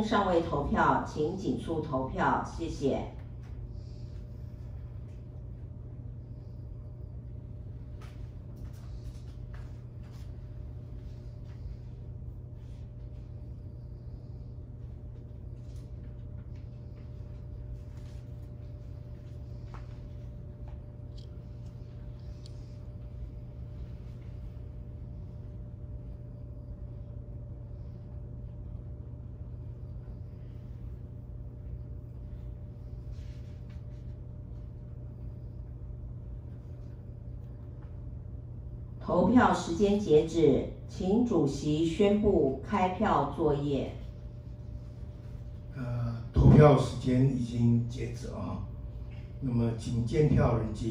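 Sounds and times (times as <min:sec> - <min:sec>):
steady low hum: 0:00.0 - 0:50.9
faint clicks and rustles: 0:07.8 - 0:12.0
faint soft rustles: 0:30.2 - 0:35.5.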